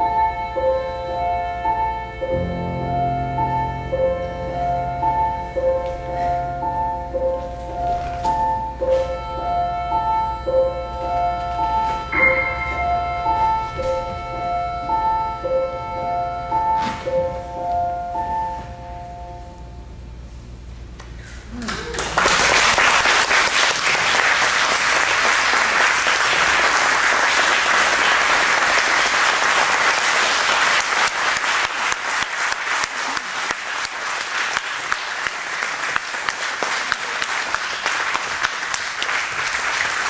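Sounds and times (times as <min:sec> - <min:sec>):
audience applause: 0:21.6 - 0:40.0.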